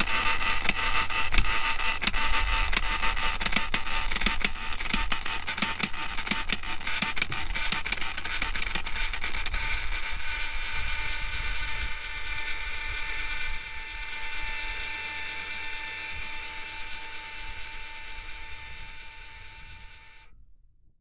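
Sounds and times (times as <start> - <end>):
mechanical gear whine: 0.0 - 20.2.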